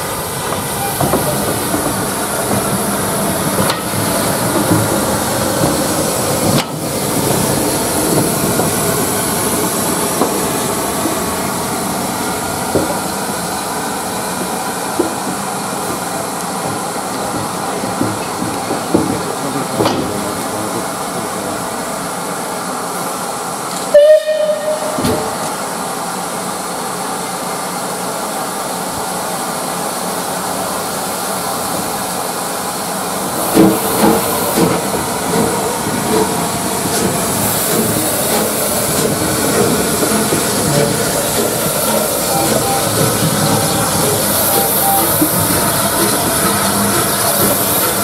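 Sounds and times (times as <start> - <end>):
steam locomotive hissing: 0.0 - 48.0
steam whistle blast: 23.9 - 25.3.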